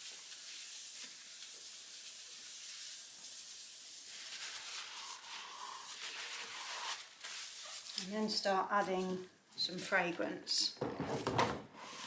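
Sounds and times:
tissue rubbing on steel worktop: 0.0 - 9.2
paper rustling: 5.9 - 8.1.

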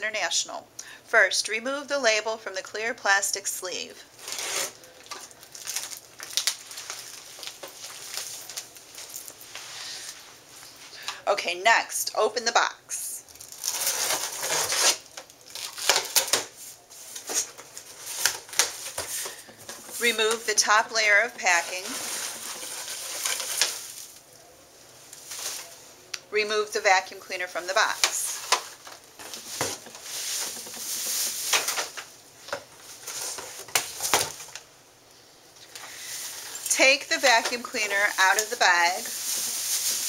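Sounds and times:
packing tape tearing: 4.2 - 9.4, 13.3 - 16.6, 17.2 - 20.4, 21.6 - 24.2, 27.8 - 34.6
plastic bag and paper crinkling: 4.2 - 10.8, 13.3 - 26.0, 27.0 - 34.7, 35.7 - 40.0
cardboard flaps scraping: 28.4 - 34.4.

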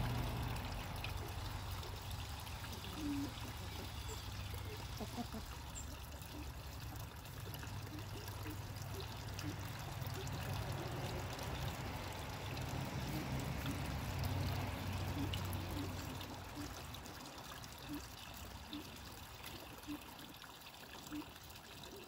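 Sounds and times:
waterfall splashing into pool: 0.0 - 3.3.

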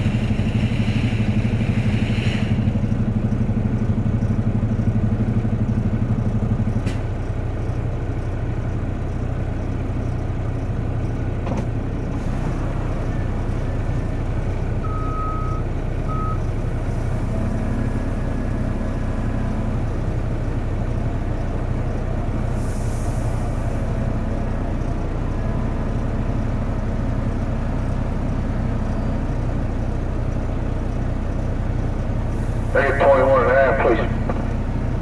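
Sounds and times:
diesel engine idling: 0.0 - 35.0
short beep: 14.8 - 16.4.

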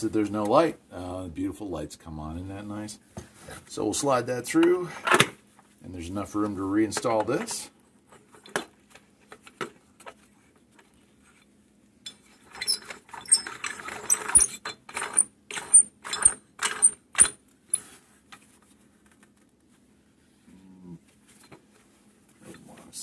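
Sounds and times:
metal clicks and scrapes: 12.1 - 17.9.

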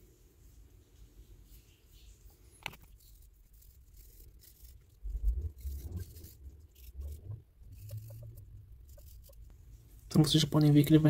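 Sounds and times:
sandpaper scratching: 2.8 - 9.5.

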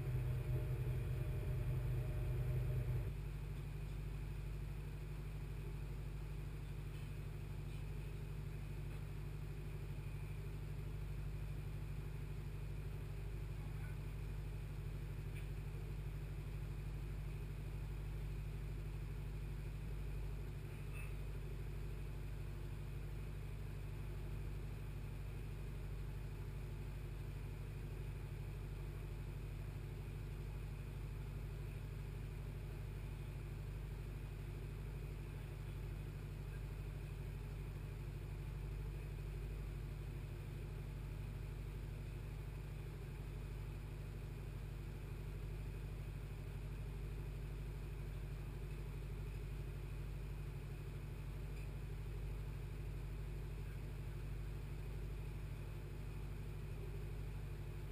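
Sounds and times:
ship engine drone: 0.0 - 3.1.

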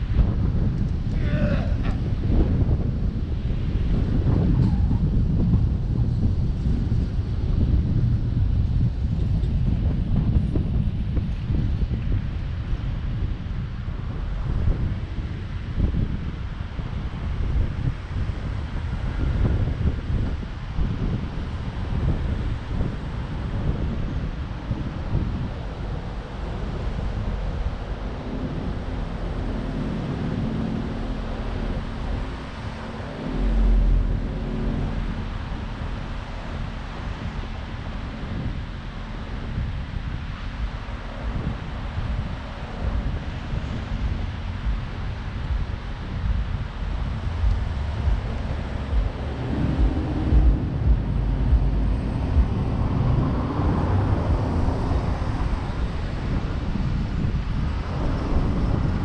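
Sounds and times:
low rumble: 0.0 - 59.0
vehicle engine hum: 0.0 - 59.0
wind buffeting microphone: 0.0 - 59.0
street traffic passing: 16.4 - 59.0.

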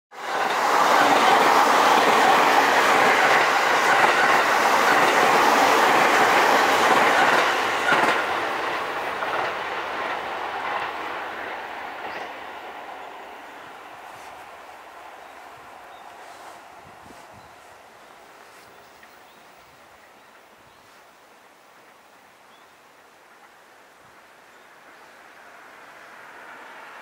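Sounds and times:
electric train passing: 0.2 - 20.6, 23.0 - 27.0
wheel clatter on rails: 0.4 - 11.0.

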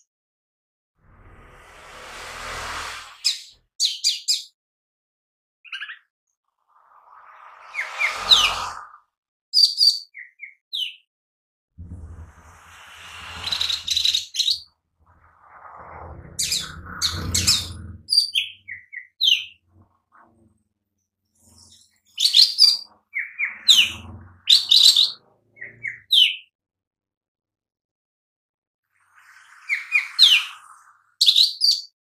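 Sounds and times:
small bird chirping and whistling: 5.7 - 6.0, 7.1 - 8.8, 9.6 - 11.0, 13.2 - 14.7, 16.4 - 19.6, 21.6 - 26.4, 29.5 - 30.6, 31.2 - 32.0.

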